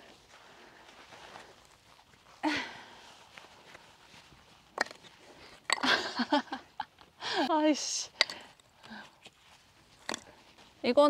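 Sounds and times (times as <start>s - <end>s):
footsteps on artificial grass: 0.0s - 5.4s
firewood handling: 4.6s - 6.2s, 8.2s - 10.5s.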